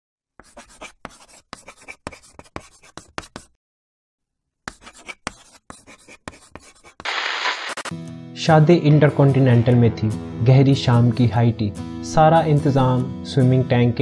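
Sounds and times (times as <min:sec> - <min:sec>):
pen scratching on paper: 0:00.4 - 0:03.6, 0:04.7 - 0:07.1.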